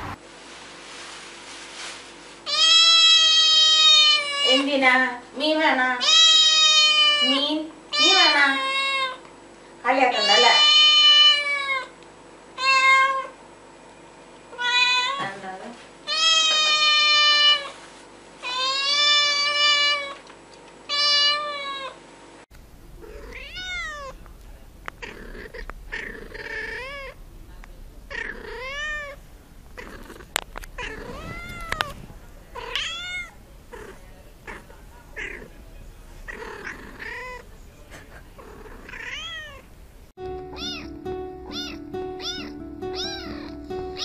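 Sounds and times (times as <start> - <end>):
cat meowing: 2.5 - 4.6, 6.0 - 7.4, 10.1 - 11.9, 12.6 - 13.3, 14.5 - 15.3, 16.1 - 17.7, 20.9 - 22.0, 23.0 - 24.2, 24.9 - 27.2, 28.0 - 29.2, 29.8 - 37.5, 38.4 - 39.7, 40.5 - 44.0
kitten meowing loudly: 2.5 - 4.6, 6.0 - 7.4, 10.1 - 11.9, 12.6 - 13.3, 14.5 - 15.3, 16.1 - 17.7, 20.9 - 22.0, 23.0 - 24.2, 25.0 - 27.2, 28.1 - 29.2, 30.8 - 32.0, 32.6 - 35.5, 38.6 - 39.6, 40.5 - 40.9, 41.5 - 44.0.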